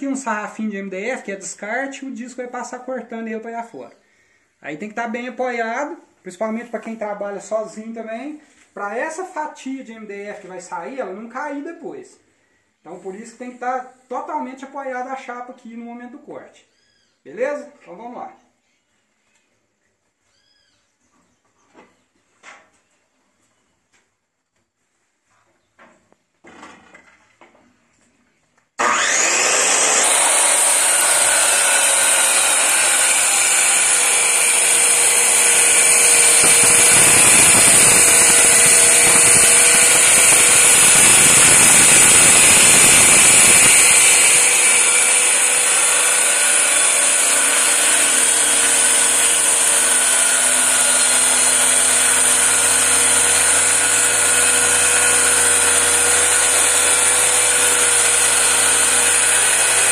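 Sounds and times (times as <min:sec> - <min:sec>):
circular saw motor whine: 0:28.8 - 0:59.9
saw cutting through board: 0:28.8 - 0:59.9.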